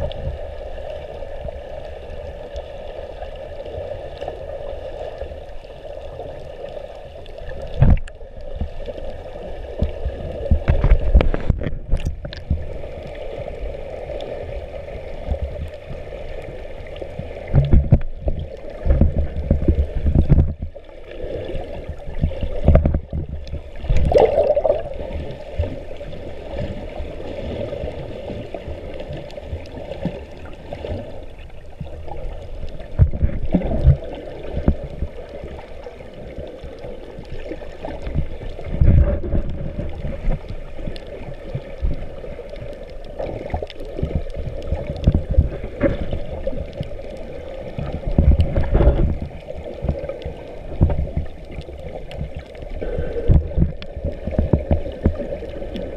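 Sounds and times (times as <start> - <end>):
muffled underwater sloshing: 0.0 - 55.9
bubbly bursts: 23.8 - 25.4.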